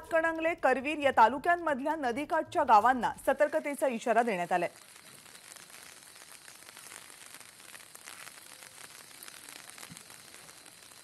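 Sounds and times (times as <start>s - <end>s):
light crackles: 3.2s - 11.0s.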